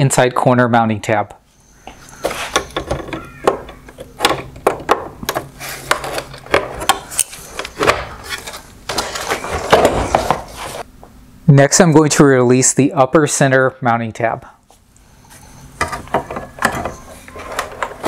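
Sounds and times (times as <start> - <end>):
plastic scraping: 2.2 - 10.8.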